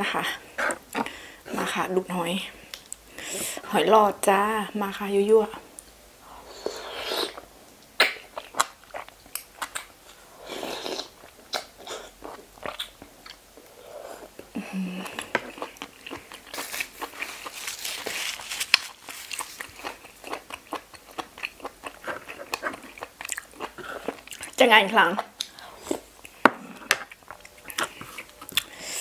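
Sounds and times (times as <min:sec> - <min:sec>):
close chewing with crunchy clicks: 0:07.9 - 0:10.2, 0:11.1 - 0:13.8, 0:14.4 - 0:17.7, 0:18.6 - 0:24.6, 0:25.2 - 0:28.8.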